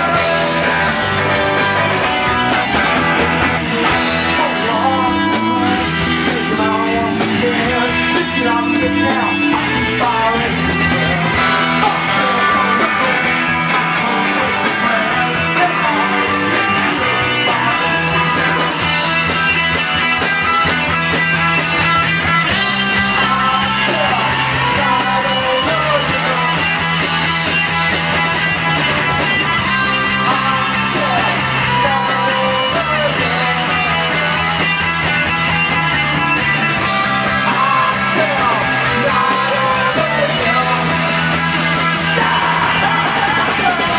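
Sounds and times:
man singing: 0.0 - 2.7, 3.8 - 19.3, 22.5 - 27.2, 29.7 - 34.9, 37.0 - 43.9
bass guitar: 0.0 - 43.9
drums: 0.0 - 43.9
electric guitar: 0.0 - 43.9.

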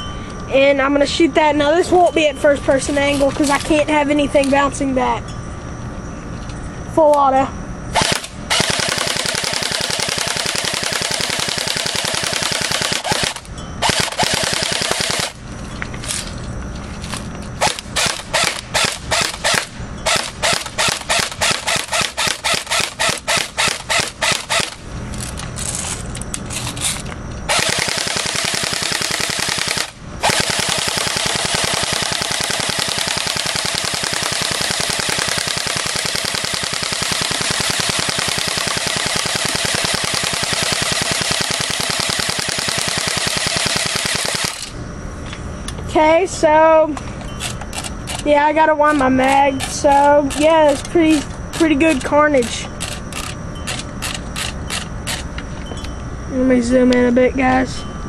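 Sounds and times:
airsoft gun firing: 7.9 - 15.4, 17.6 - 24.8, 27.5 - 44.7.

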